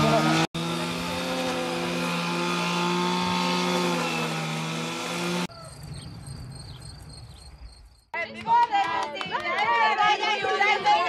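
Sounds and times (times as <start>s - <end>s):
small engine droning: 0.0s - 5.5s
high chirping: 5.5s - 8.1s.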